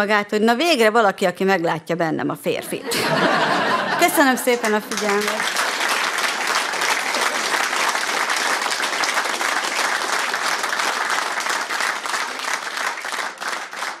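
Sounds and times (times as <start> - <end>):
audience applauding: 3.5 - 14.0.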